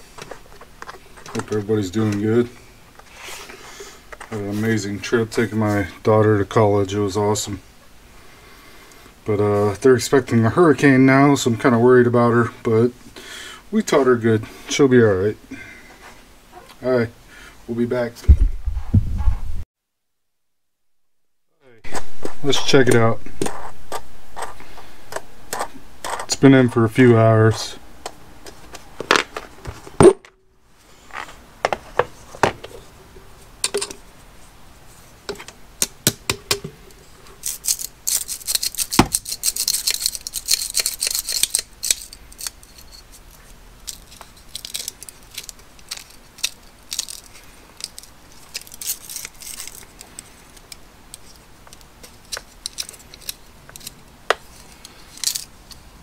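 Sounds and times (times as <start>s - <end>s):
gritty media rustling: 21.8s - 30.0s, 30.8s - 35.6s, 36.6s - 56.0s
metal and plastic clinking: 37.4s - 55.8s.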